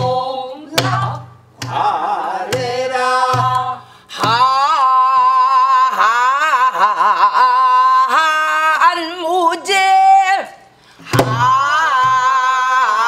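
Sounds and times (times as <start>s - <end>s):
drum stroke: 0.0s - 4.6s
woman singing with vibrato: 0.0s - 13.0s.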